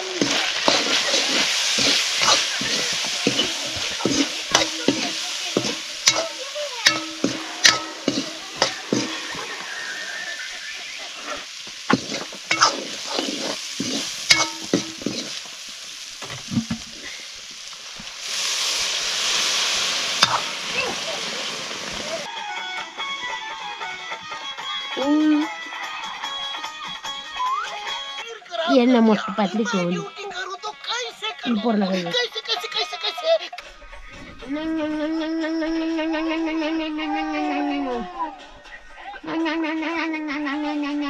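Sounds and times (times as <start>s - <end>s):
food sizzling in a pan: 0.0s - 22.4s
utensil knocking against pan: 1.8s - 9.5s.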